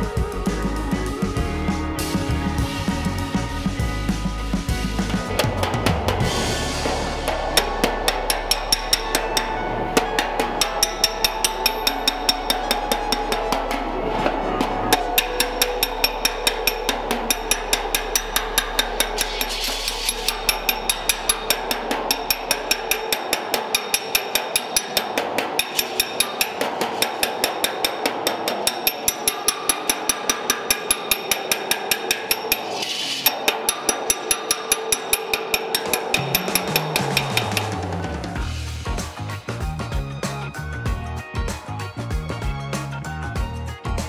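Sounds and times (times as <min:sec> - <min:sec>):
hammer striking steel panel: 0:05.2 - 0:38.4.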